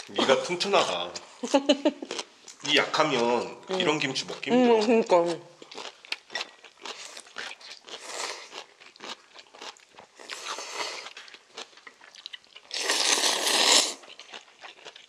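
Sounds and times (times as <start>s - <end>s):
crisp crunching of kimchi: 2.0s - 15.0s
noodle slurping: 12.7s - 14.0s.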